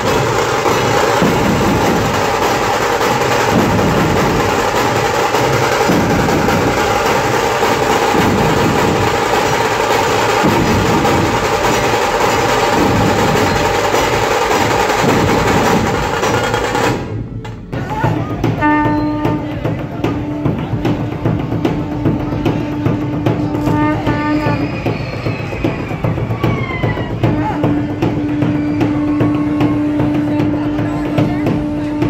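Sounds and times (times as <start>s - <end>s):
fast sharp drum strokes: 0.0s - 32.0s
large barrel drums beating: 0.0s - 32.0s.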